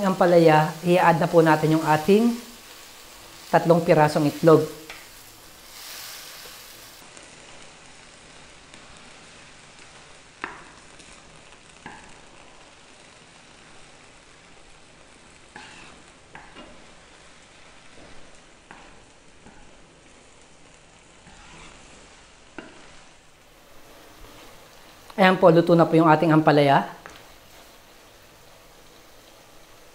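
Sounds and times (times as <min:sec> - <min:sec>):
vegetables sizzling in a wok: 0:00.0 - 0:29.9
wooden spatula scraping pan: 0:15.5 - 0:16.9, 0:21.2 - 0:24.6.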